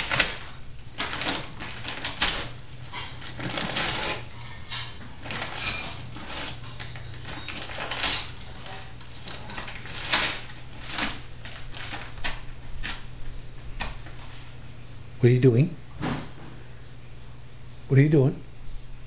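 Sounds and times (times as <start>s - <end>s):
paper bag crackling and tearing: 0.0s - 14.4s.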